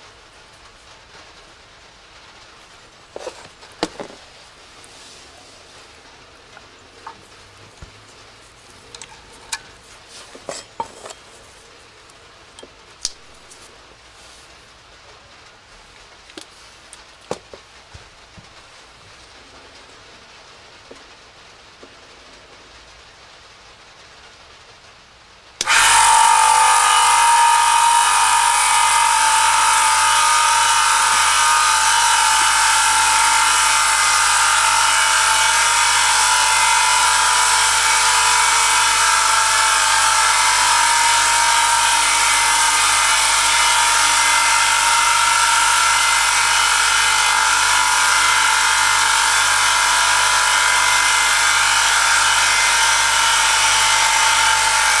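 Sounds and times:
electric motor whining: 0:25.6 - 0:55.0.

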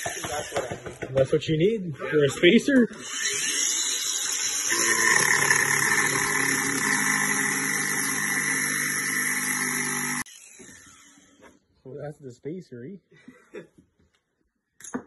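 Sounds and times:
angle grinder grinding metal: 0:02.8 - 0:11.5.

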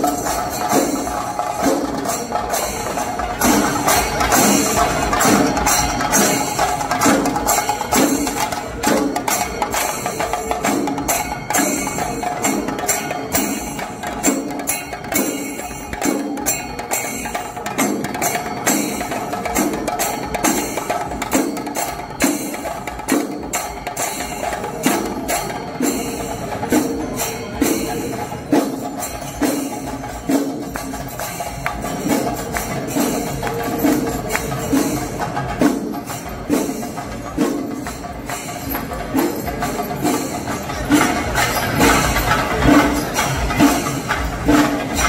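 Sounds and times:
drum strikes: 0:00.0 - 0:45.0
jingling metal: 0:00.0 - 0:45.0.

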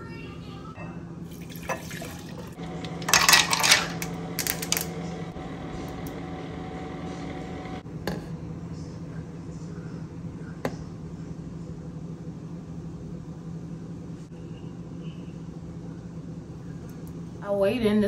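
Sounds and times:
steady low hum: 0:00.0 - 0:18.0
liquid pouring into mug: 0:01.3 - 0:03.1
ice cubes clattering into mug: 0:03.0 - 0:04.9.

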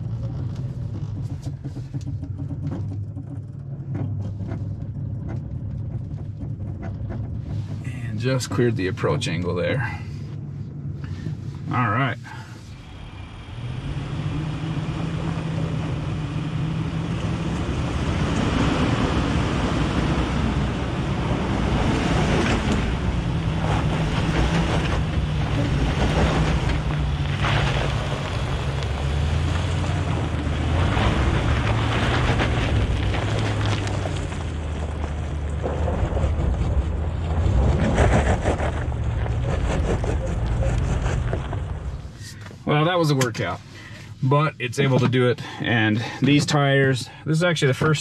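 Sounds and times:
engine working hard under load: 0:00.0 - 0:44.2
tyres on rough terrain: 0:00.0 - 0:48.0.

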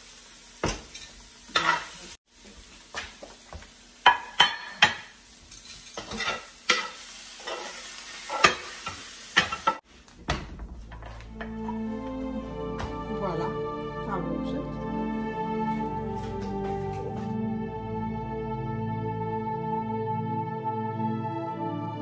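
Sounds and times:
food sizzling in frying pan: 0:00.0 - 0:10.0
metal spoon scraping pan: 0:01.0 - 0:02.0, 0:04.1 - 0:09.8
spoon clacking against pan: 0:04.0 - 0:09.8.

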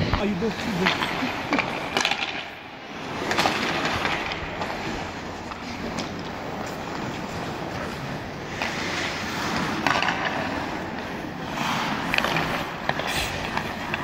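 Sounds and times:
hockey sticks and puck clacking: 0:00.0 - 0:14.0
skate blades scraping on ice: 0:00.0 - 0:14.0.

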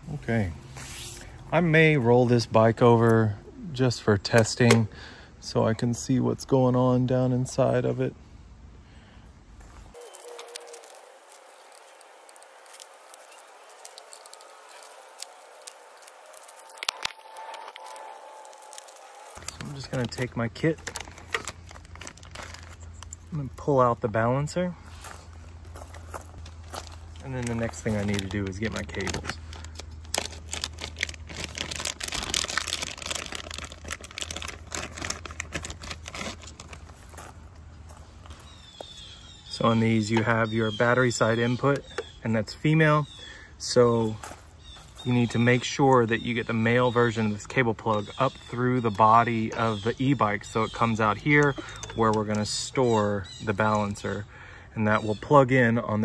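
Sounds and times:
plastic bag crinkling: 0:09.9 - 0:23.3, 0:26.0 - 0:37.5.

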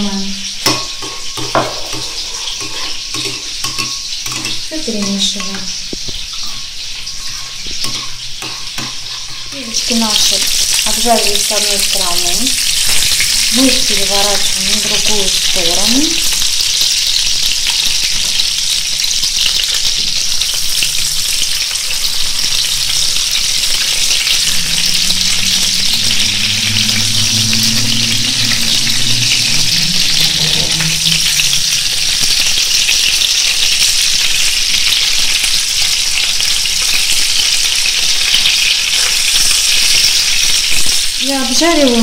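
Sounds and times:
meatballs sizzling in hot oil: 0:00.0 - 0:42.0
wooden spatula scraping and knocking: 0:00.7 - 0:04.6, 0:05.4 - 0:09.9.

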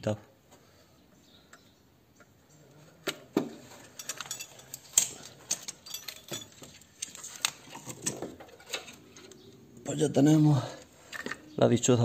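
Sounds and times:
metallic clinks and knocks: 0:03.0 - 0:09.4.

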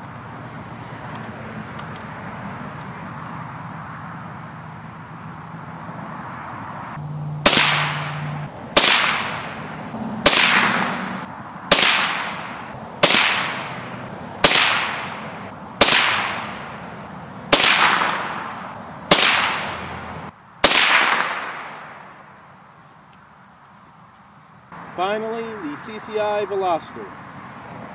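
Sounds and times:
rifle shots ringing: 0:07.4 - 0:15.2, 0:15.8 - 0:16.8, 0:17.5 - 0:20.0, 0:20.6 - 0:22.1.

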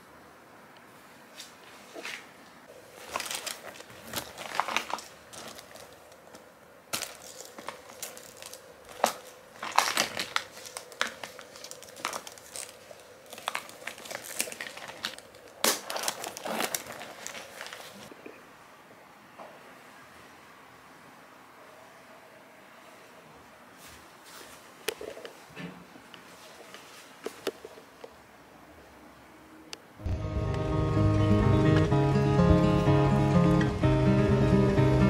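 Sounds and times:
bag rustling and crinkling: 0:01.8 - 0:18.1.

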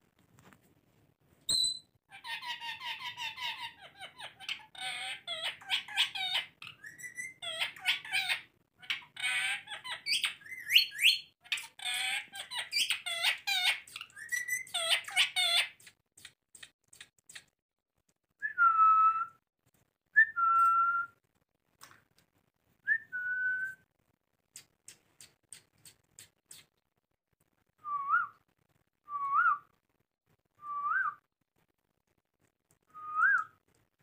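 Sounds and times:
parakeets screeching: 0:02.2 - 0:15.8.

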